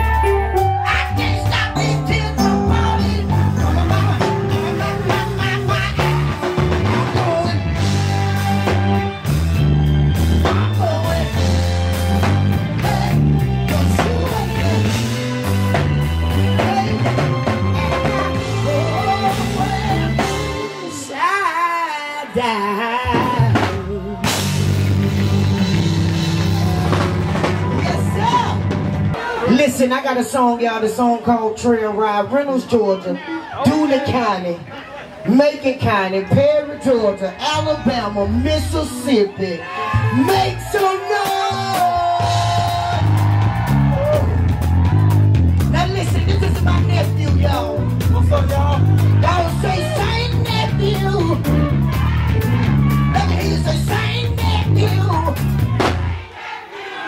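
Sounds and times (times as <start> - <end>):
person singing: 0.0 - 9.2, 10.4 - 27.1, 53.0 - 55.4
drums: 0.0 - 30.4, 37.8 - 56.6
bass line: 0.0 - 32.9, 35.3 - 56.4.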